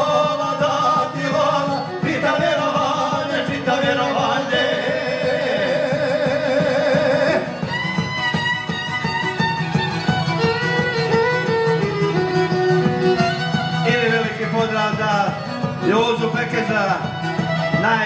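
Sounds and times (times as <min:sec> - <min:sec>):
man singing: 0:00.0 - 0:07.6, 0:13.8 - 0:16.9
folk music on violin: 0:00.0 - 0:18.0.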